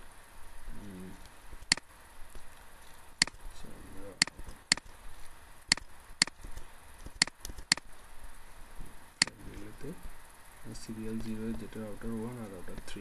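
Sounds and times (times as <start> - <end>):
computer mouse buttons clicking: 5.7 - 7.9.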